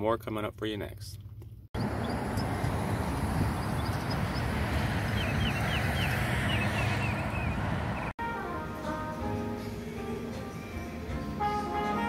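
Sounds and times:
small bird chirping: 0:01.8 - 0:08.1.

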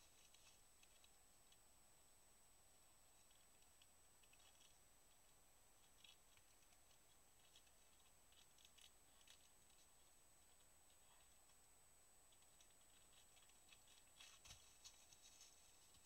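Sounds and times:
faint high-pitched whine: 0:00.0 - 0:16.0
claws scratching tree bark: 0:12.3 - 0:16.0.

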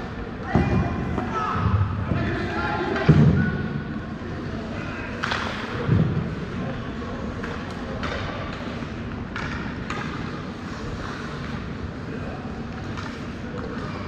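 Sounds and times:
skates and sticks scraping ice: 0:08.5 - 0:14.0.

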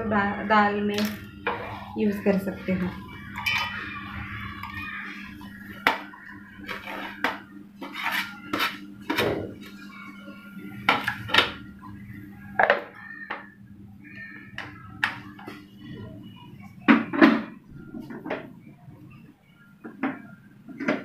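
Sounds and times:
crockery clinking and scraping: 0:03.2 - 0:04.0, 0:06.6 - 0:09.2.

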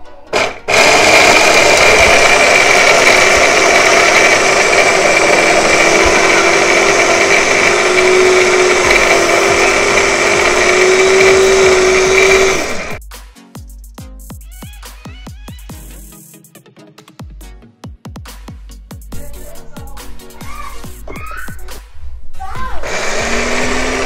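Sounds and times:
electric food chopper whining: 0:00.3 - 0:13.0, 0:22.8 - 0:24.0.

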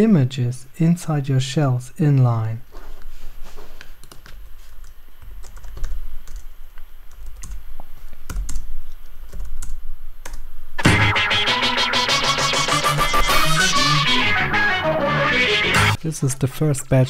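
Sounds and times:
computer keyboard typing: 0:04.0 - 0:04.4, 0:05.3 - 0:06.5, 0:07.1 - 0:07.6, 0:08.3 - 0:08.7, 0:09.3 - 0:10.4
loud guitar music: 0:10.8 - 0:16.0.

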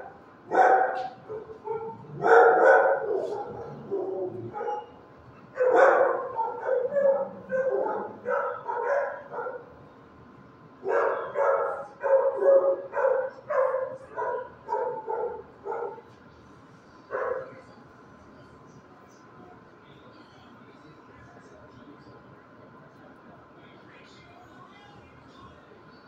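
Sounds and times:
dog barking: 0:00.0 - 0:05.0, 0:05.6 - 0:09.7, 0:10.8 - 0:16.1, 0:17.1 - 0:17.5.

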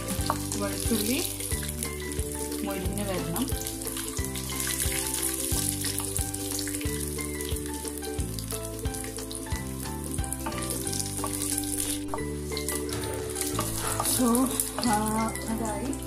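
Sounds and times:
background music: 0:00.0 - 0:16.0
food sizzling in oil: 0:00.0 - 0:16.0
wooden spatula stirring: 0:08.4 - 0:15.8.

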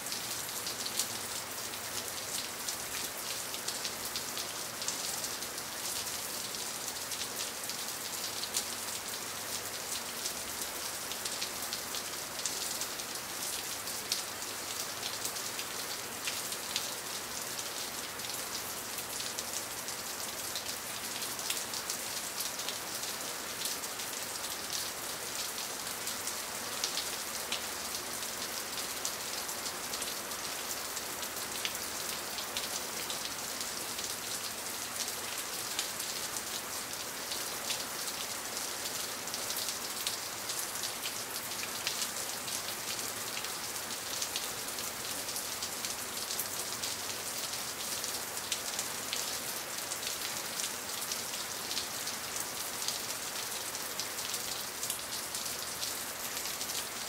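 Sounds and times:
rain pattering: 0:00.0 - 0:57.0.

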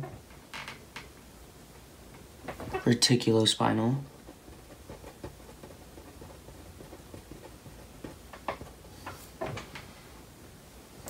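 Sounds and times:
marker pen writing on paper: 0:04.1 - 0:08.8.

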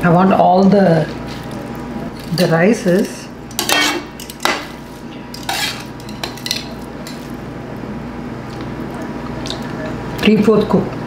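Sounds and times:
metal spoon scraping a metal pan: 0:03.6 - 0:04.5, 0:05.3 - 0:07.3.

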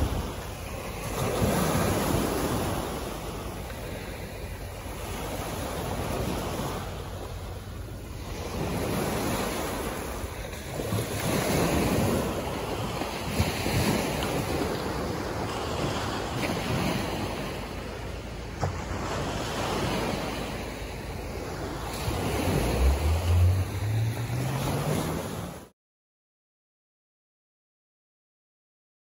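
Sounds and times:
waves breaking on beach: 0:00.0 - 0:25.7
wind on microphone: 0:00.0 - 0:25.7.

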